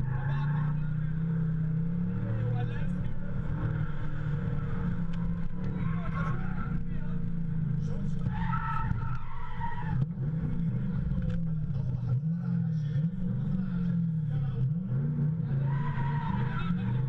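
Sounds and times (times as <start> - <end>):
tyres squealing: 0.0 - 10.2, 15.5 - 17.0
car engine revving: 0.0 - 17.0.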